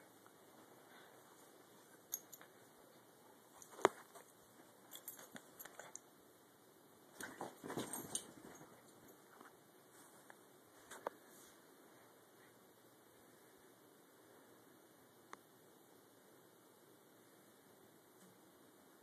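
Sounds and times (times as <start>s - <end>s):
dog scuffling with clicks and rustles: 3.5s - 6.0s, 7.1s - 11.1s.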